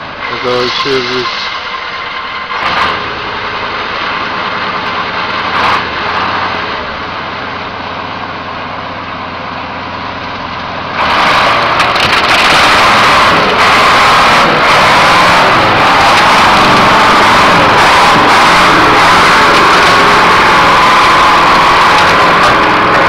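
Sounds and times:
diesel truck engine under load: 0.0 - 23.0.

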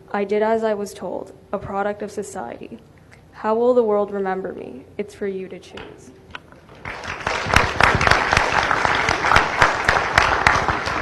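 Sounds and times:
audience applauding: 6.8 - 11.0.

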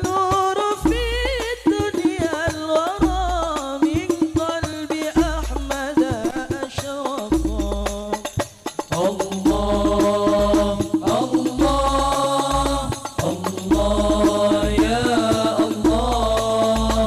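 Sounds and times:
man singing devotional melody: 0.0 - 17.0
deep bass: 13.7 - 15.2.

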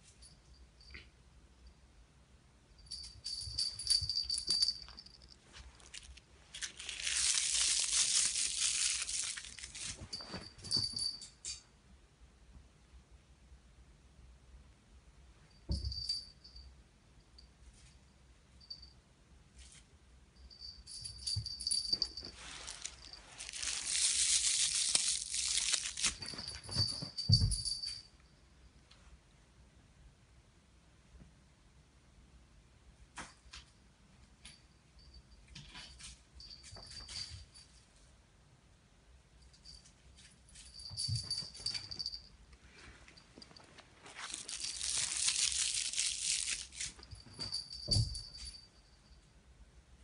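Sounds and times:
bedding rustling: 2.9 - 11.3, 20.9 - 27.9, 40.6 - 48.6
foil ball crinkling: 5.7 - 10.0, 22.4 - 26.4, 44.1 - 47.1.

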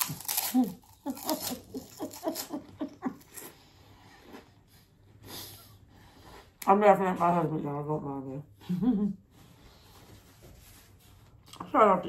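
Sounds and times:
woman laughing: 0.5 - 3.5, 8.6 - 9.2.

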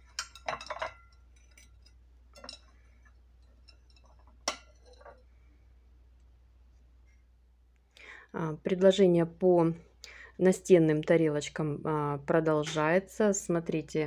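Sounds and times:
porcelain plates clinking: 0.0 - 2.8, 3.5 - 5.2.

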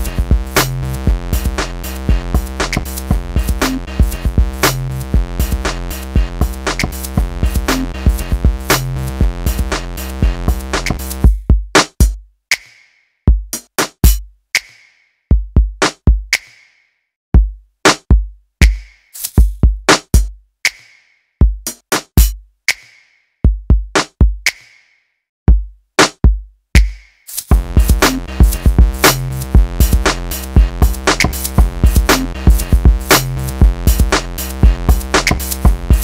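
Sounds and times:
electronic music: 0.0 - 11.3, 27.5 - 36.0
drum machine kick and snare: 0.0 - 16.7, 17.4 - 24.8, 25.5 - 36.0.

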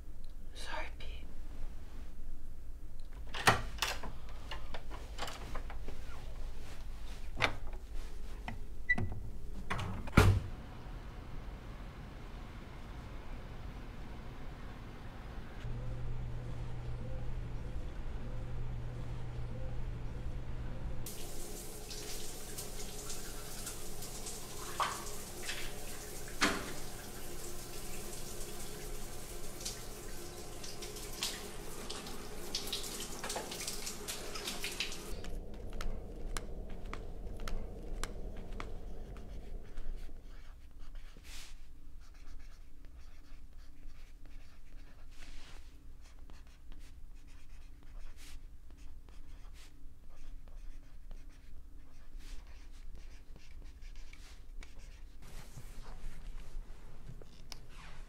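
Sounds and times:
faint low hum: 0.0 - 58.0
shower water running: 21.0 - 39.6
marker writing on paper: 38.6 - 45.3, 46.0 - 55.2.

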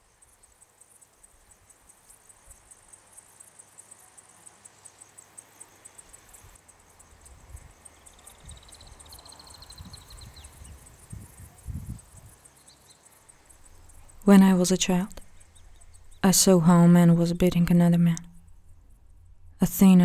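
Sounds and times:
crickets chirping: 0.0 - 20.0
lower insect trill: 0.0 - 20.0
low rumbling: 13.5 - 20.0.

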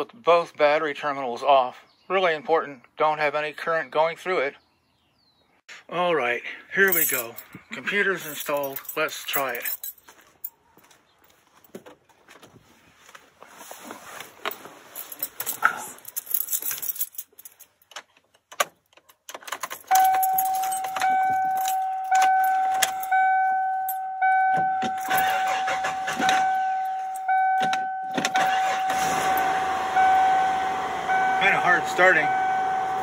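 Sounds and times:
keys jangling: 6.9 - 7.6, 8.2 - 10.6, 14.9 - 28.9
dashboard warning chime dinging: 19.7 - 33.0.

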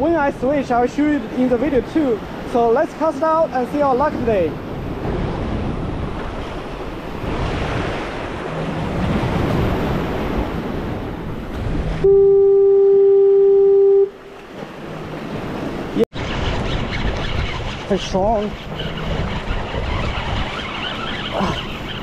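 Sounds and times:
deep horn blast: 11.9 - 14.2.

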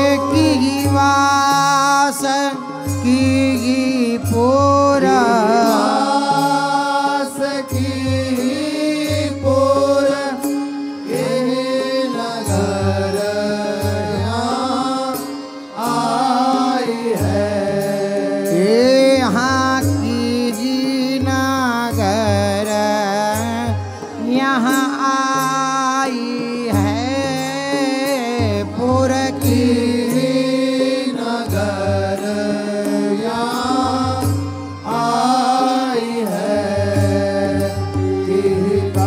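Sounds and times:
ornamented sliding melody: 0.0 - 7.5.

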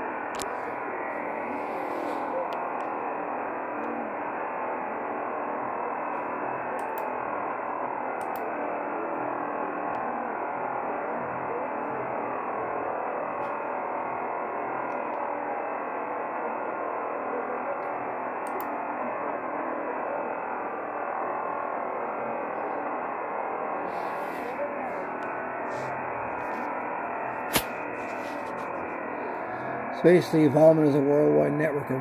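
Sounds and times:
radio jamming noise: 0.0 - 32.0.

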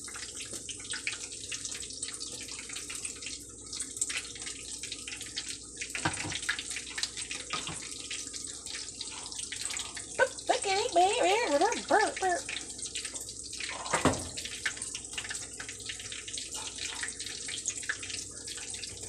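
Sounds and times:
oil sizzling and crackling: 0.0 - 19.0.

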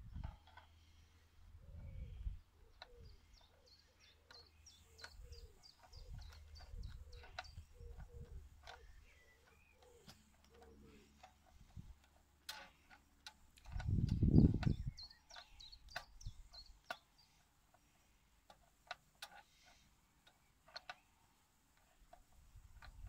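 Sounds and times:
small tool clicks and taps: 2.8 - 21.0.

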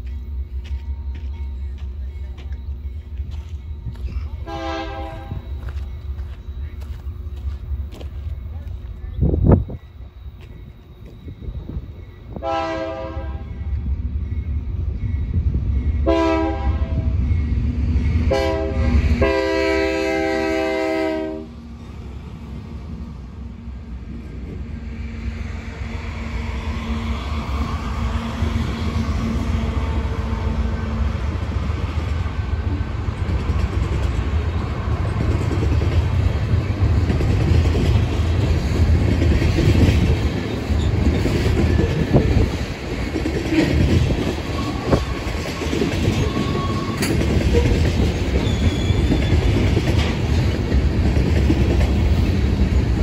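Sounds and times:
freight train rumble: 0.0 - 53.0
train wheel clatter: 31.2 - 53.0
high-pitched wheel squeals: 44.5 - 47.8, 48.4 - 49.6.

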